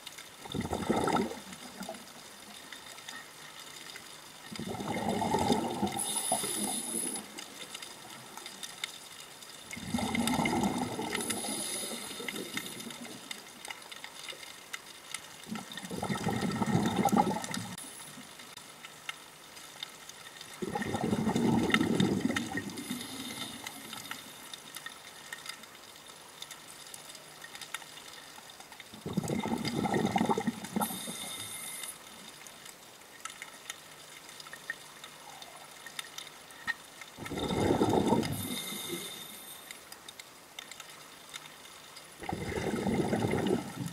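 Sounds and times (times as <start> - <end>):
faint crackling clicks: 0.0 - 43.9
scuba regulator exhalation bubbles: 0.4 - 2.0, 4.5 - 7.4, 9.7 - 13.1, 15.4 - 17.8, 20.6 - 23.6, 28.9 - 31.4, 37.2 - 39.3, 42.2 - 43.9.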